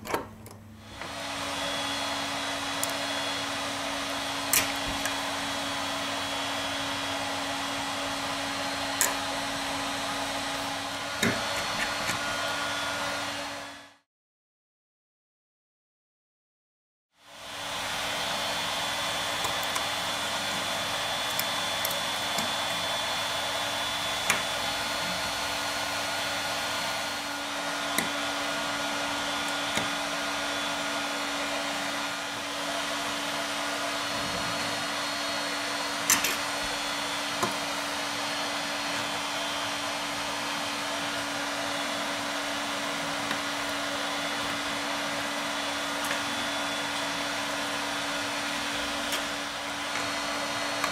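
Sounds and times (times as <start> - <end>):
blower humming: 0.0 - 14.0, 17.2 - 50.9
screwdriver clicking on metal: 4.5 - 5.2, 21.2 - 22.8, 27.9 - 28.2, 36.0 - 36.5.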